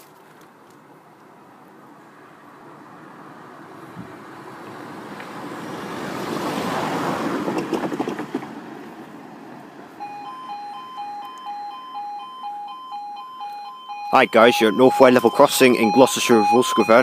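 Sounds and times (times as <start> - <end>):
vehicle passing: 1.5 - 17.0
two-tone warbling alarm: 10.0 - 17.0.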